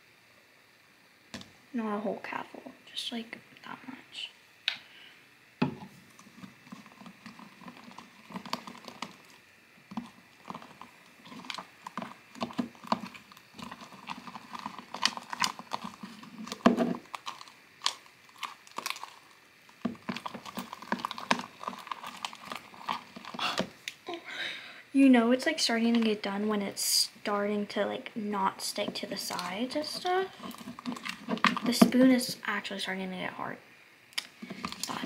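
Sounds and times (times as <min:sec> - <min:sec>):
slime squelching: 0:05.8 - 0:24.0, 0:28.5 - 0:32.6, 0:34.2 - 0:35.0.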